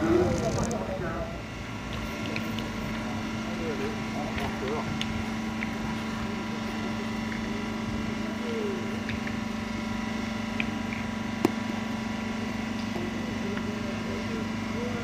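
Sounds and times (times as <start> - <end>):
faint voices: 0.0 - 9.2, 11.6 - 15.0
low mechanical hum: 0.0 - 15.0.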